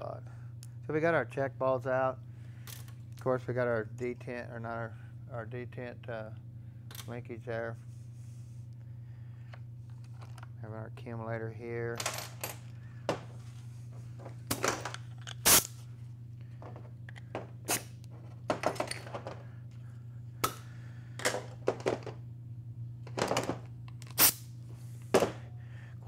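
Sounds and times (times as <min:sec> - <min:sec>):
steady low hum: 0:00.0 - 0:26.0
metal parts clanking on workbench: 0:18.5 - 0:19.4.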